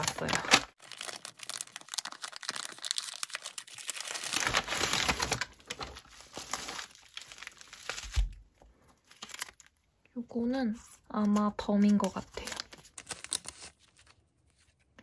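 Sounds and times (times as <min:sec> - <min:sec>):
paper mailer being peeled open: 0:00.0 - 0:08.3, 0:12.1 - 0:14.2
bubble wrap and plastic crinkling: 0:00.0 - 0:09.8, 0:11.2 - 0:14.8.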